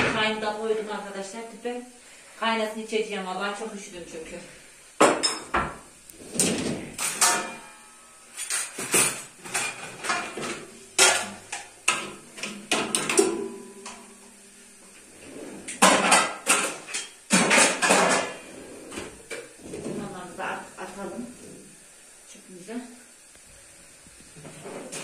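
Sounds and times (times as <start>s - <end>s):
dishes and glasses clattering: 5.0s - 5.8s, 6.4s - 14.0s, 15.8s - 18.4s.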